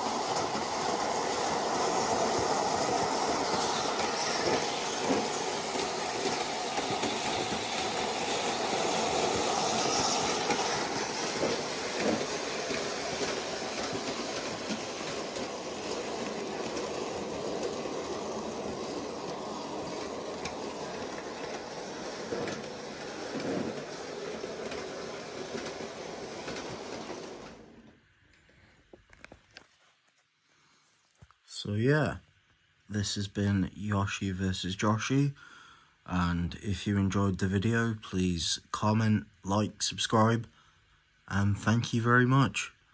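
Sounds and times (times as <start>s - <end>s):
wheels clattering over track: 0.0s - 27.9s
model train motor whirring: 0.0s - 28.0s.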